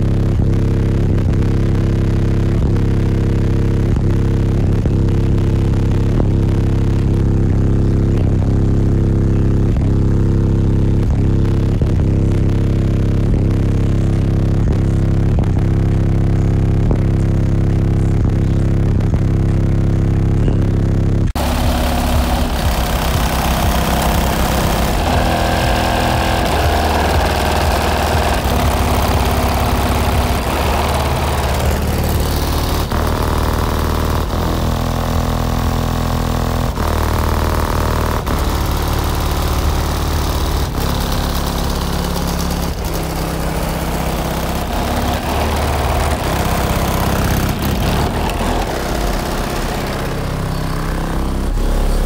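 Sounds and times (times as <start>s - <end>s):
loud bass-heavy music: 0.0s - 52.0s.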